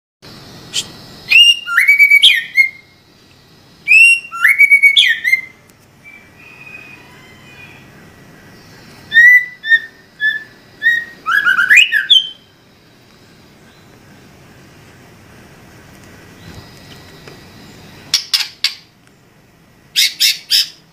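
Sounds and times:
bird singing whistled phrases: 0.7 - 3.0, 3.8 - 7.8, 9.1 - 12.5.

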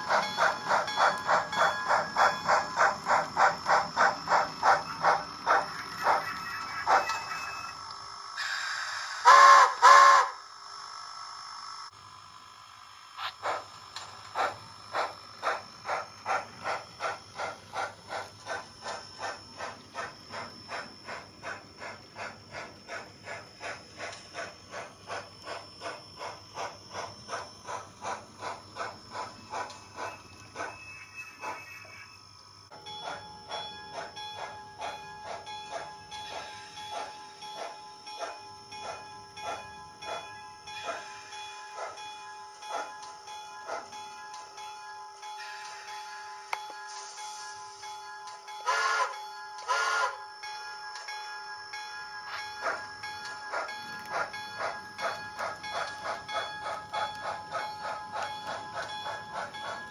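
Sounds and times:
steam chuffs: 0.0 - 7.3, 8.4 - 10.4, 13.2 - 31.7, 32.7 - 42.9
steam hiss: 8.4 - 10.3, 40.7 - 42.0, 45.3 - 50.2
locomotive whistle toots: 8.4 - 10.4, 48.6 - 50.2.

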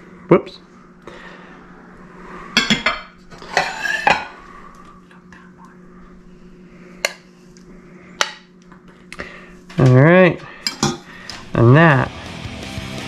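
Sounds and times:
ceramic tableware clinking: 2.6 - 4.4.

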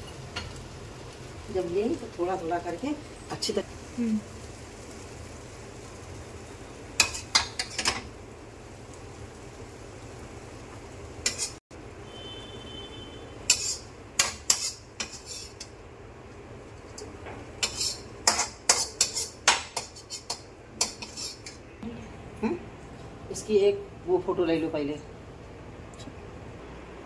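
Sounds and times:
metal spatula scraping a wok: 11.2 - 11.6, 13.4 - 15.8, 17.0 - 21.6.

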